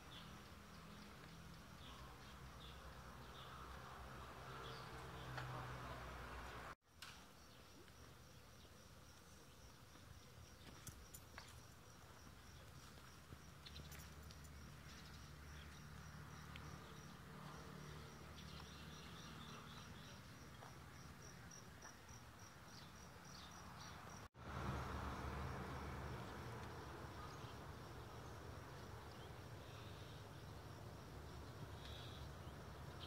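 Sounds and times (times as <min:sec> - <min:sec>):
insect chirping: 0:07.4 - 0:33.0.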